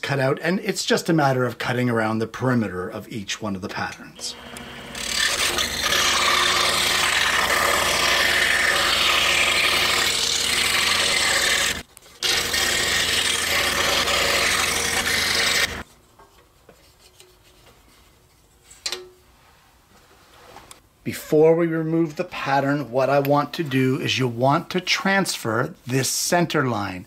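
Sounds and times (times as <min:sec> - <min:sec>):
motor humming: 0:04.2 - 0:15.8
saw blade rasping through wood: 0:04.3 - 0:15.9.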